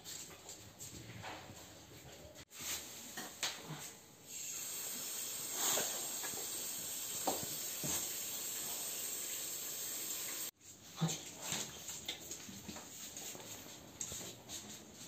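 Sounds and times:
water running from shower: 4.3 - 10.6.

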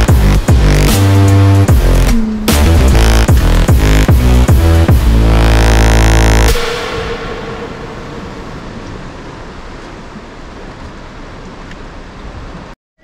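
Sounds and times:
electronic dance music: 0.0 - 8.4
sea noise: 0.0 - 12.8
wind: 6.5 - 12.8.

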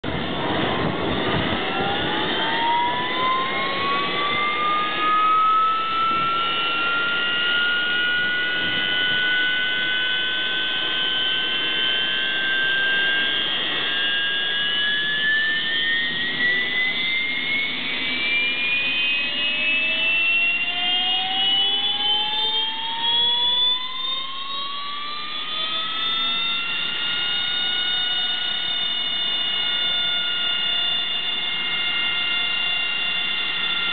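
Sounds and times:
jet engine rushing noise: 0.0 - 23.2
jet engine starting whine: 0.0 - 33.9.

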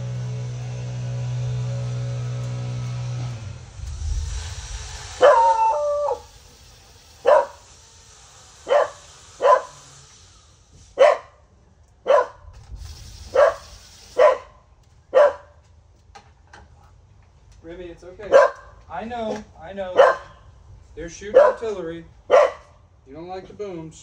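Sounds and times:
dog barking: 5.2 - 6.2, 7.2 - 7.6, 8.7 - 9.8, 11.0 - 11.4, 12.1 - 12.4, 13.3 - 14.5, 15.1 - 15.6, 18.3 - 18.7, 20.0 - 20.4, 21.3 - 21.7, 22.3 - 22.7.

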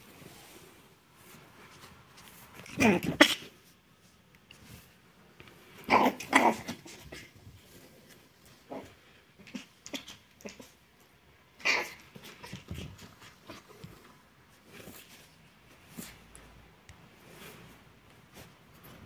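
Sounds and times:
puppy play noises: 5.6 - 16.6
bedding rustling: 12.1 - 19.0.

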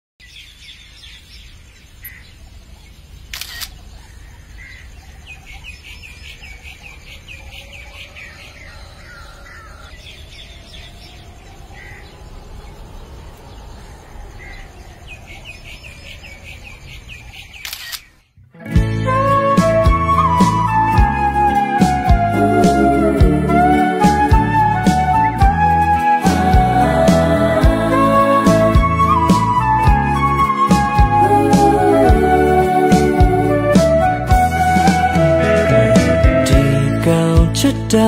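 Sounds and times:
birds chirping: 0.2 - 38.0
low outdoor hum: 1.3 - 18.2
camera shutter clicking: 3.3 - 3.8, 17.6 - 18.2.

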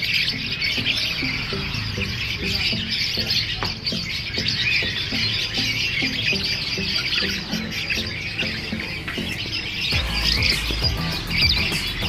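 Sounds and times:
lovebirds chattering and squawking: 0.0 - 12.0
music with steady beat: 0.0 - 12.0.

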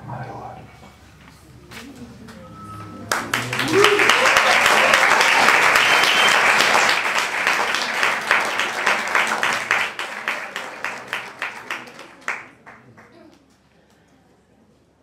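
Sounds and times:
audience applauding: 3.0 - 13.3.

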